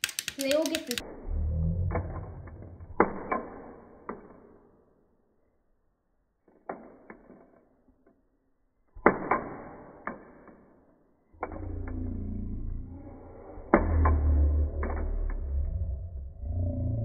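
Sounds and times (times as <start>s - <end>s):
plastic pieces clicking: 0.0s - 1.1s, 6.4s - 8.3s.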